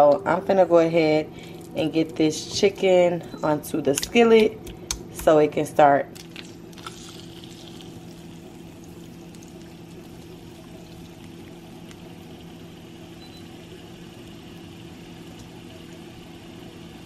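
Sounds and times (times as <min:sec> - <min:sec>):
steady low hum: 0:00.0 - 0:17.0
chicken sizzling in hot oil: 0:06.7 - 0:17.0.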